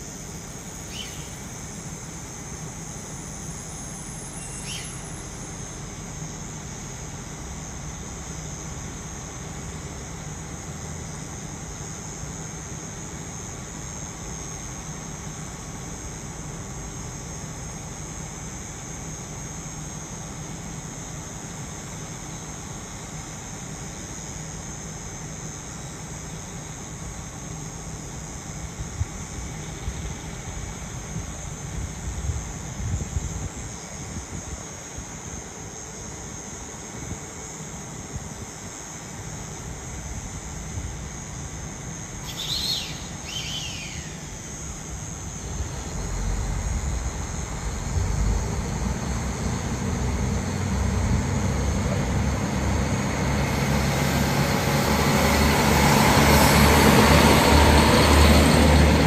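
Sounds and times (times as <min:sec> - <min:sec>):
insects buzzing: 0:00.0 - 0:59.0
diesel train engine rumble: 0:39.6 - 0:59.0.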